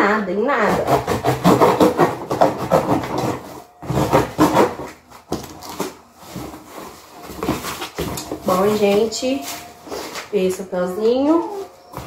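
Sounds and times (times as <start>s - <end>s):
cardboard rubbing and scraping: 0.6s - 10.2s
packing tape peeling off cardboard: 1.4s - 8.3s.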